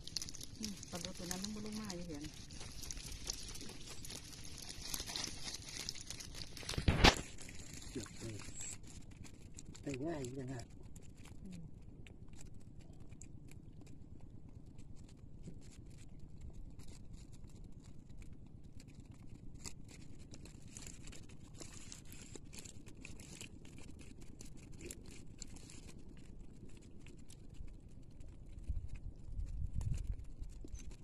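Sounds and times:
fishing net rustling: 0.0 - 9.8.

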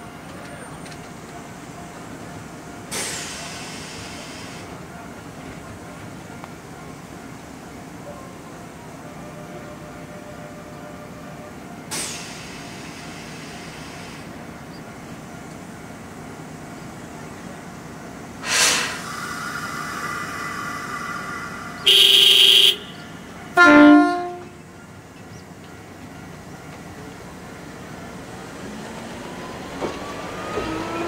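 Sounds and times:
train horn blasts: 9.0 - 11.6, 21.8 - 24.6
compressed air hissing: 18.4 - 23.2.

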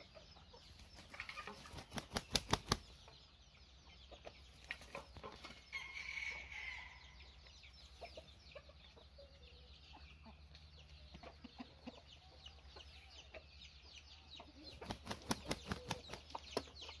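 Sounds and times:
small birds chirping: 0.0 - 17.0
rooster wings flapping: 1.5 - 2.8, 14.8 - 16.2.

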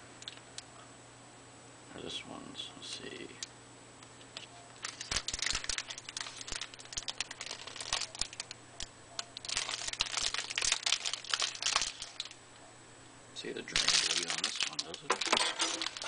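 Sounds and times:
packaging crinkling: 4.8 - 8.6, 9.2 - 12.4, 13.6 - 16.0.

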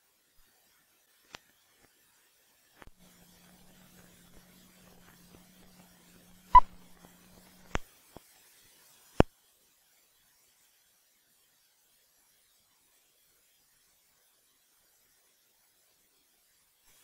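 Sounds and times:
faint steady hum: 0.0 - 17.0
film clicks and pops: 6.5 - 7.8.

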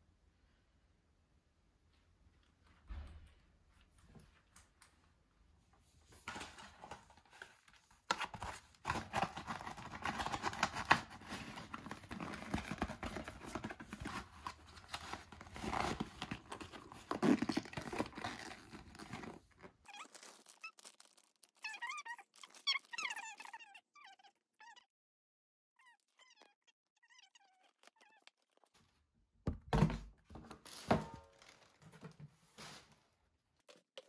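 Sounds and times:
rustling and scraping of paper: 6.1 - 23.0, 30.6 - 33.1
high squeaky sounds: 19.8 - 24.8.

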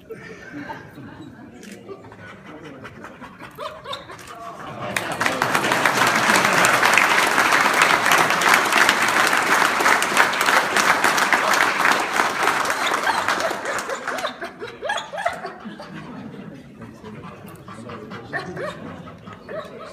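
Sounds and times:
group applauding: 4.3 - 14.8.

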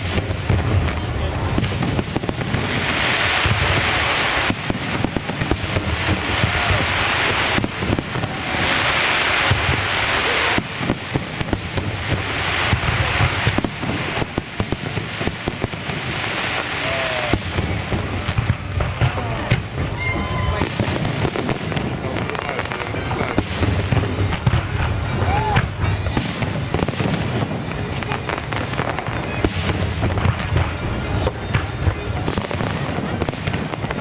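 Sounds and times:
firework bangs and booms: 0.0 - 34.0
hissing firework crackle: 0.0 - 34.0.

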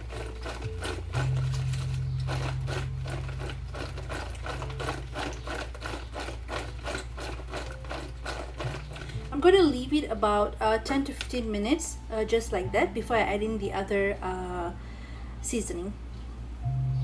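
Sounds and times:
vegetable slices rattling in colander: 0.0 - 9.8
low background music: 0.0 - 17.0.

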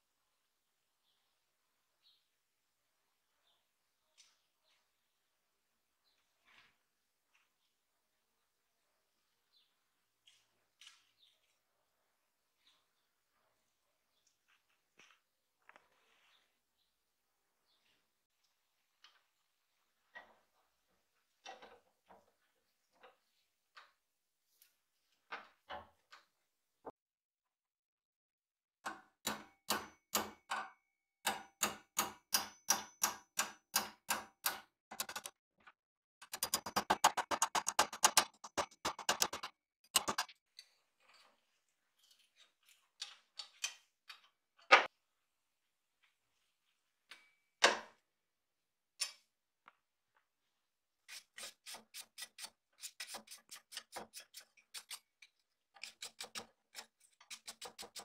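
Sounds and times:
small hammer tapping a punch: 28.9 - 35.2.

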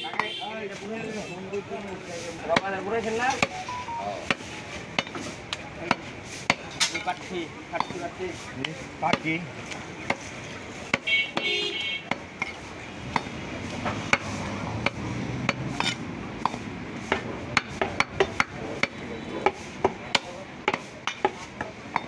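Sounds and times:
cleaver chopping meat on wood: 2.5 - 3.6, 4.3 - 10.3, 10.9 - 11.5, 12.1 - 22.0.

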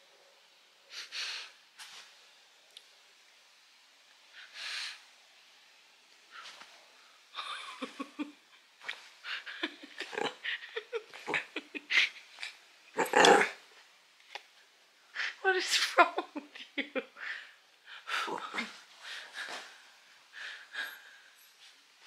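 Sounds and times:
woman laughing: 7.4 - 8.5, 9.3 - 12.4, 15.6 - 17.2
dog grumbling and whining: 10.0 - 10.5, 13.0 - 13.6.

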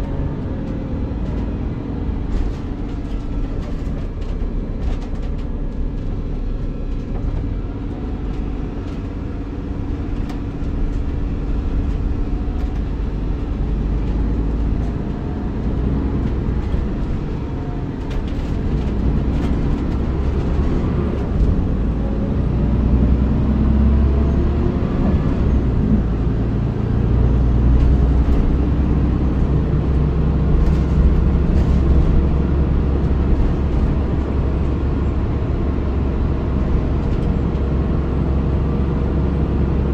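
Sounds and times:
bus diesel engine rumbling: 0.0 - 39.9.

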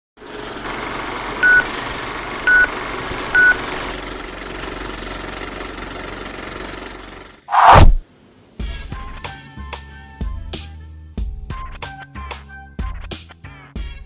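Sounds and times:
film projector clattering: 0.2 - 7.4.

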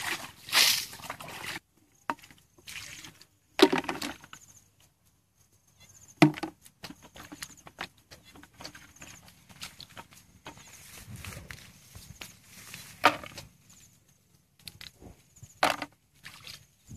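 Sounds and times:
hands splashing in muddy water: 0.0 - 1.6.

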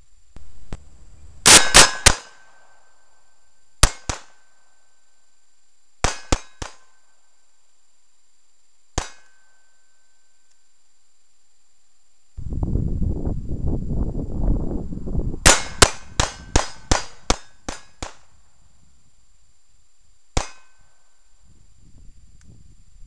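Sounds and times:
pistol shots: 1.4 - 2.9, 3.8 - 4.5, 6.0 - 7.0, 15.4 - 18.3
steel target ringing: 1.4 - 5.2, 6.0 - 7.4, 9.0 - 10.3, 15.4 - 18.2, 20.4 - 21.2.

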